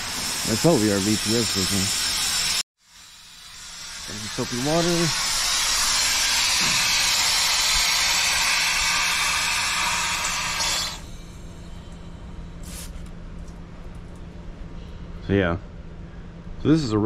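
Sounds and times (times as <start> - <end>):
hiss of escaping air pressure: 3.9 - 11.8, 12.6 - 13.0.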